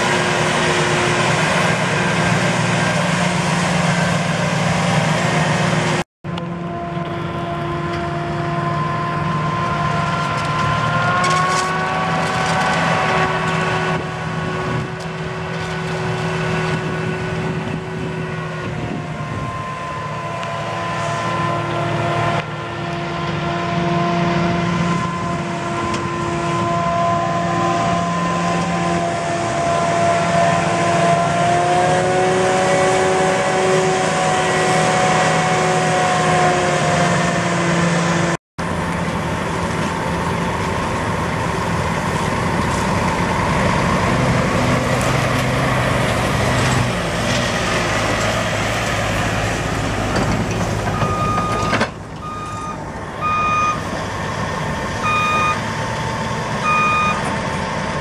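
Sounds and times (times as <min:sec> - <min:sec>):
forage harvester droning: 0:00.0 - 0:58.0
reversing alarm beeping: 0:19.0 - 0:22.4, 0:50.9 - 0:53.9, 0:55.0 - 0:57.3.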